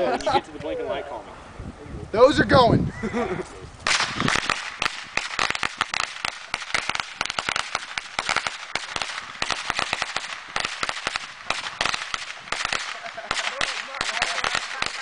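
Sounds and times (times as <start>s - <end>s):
crackling hiss: 3.4s - 15.0s
firecrackers popping: 3.8s - 15.0s.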